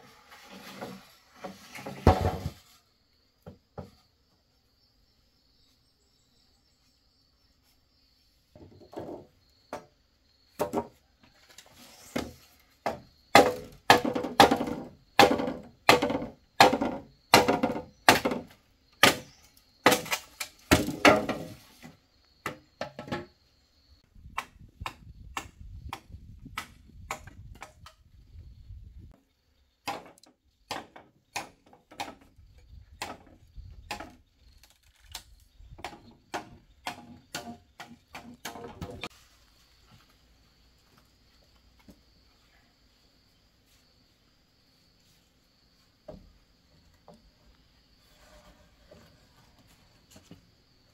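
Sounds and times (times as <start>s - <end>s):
blade chopping wood: 12.9s - 21.5s.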